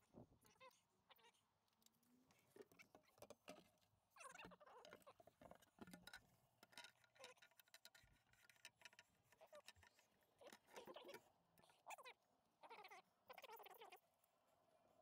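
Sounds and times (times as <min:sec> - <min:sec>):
faint metal plate clicks: 0:01.7 - 0:11.7.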